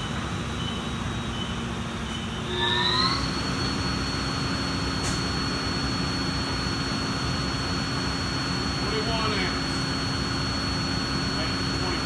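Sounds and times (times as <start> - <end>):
electric motor humming with high whine: 0.0 - 12.0.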